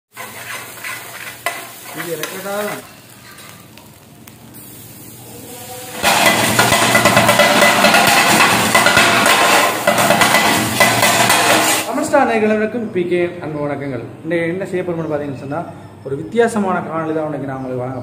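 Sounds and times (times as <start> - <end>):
ladle scraping and tapping griddle: 0.1 - 4.0, 5.9 - 11.9
metal blades clattering on griddle: 0.2 - 3.6, 6.0 - 11.9.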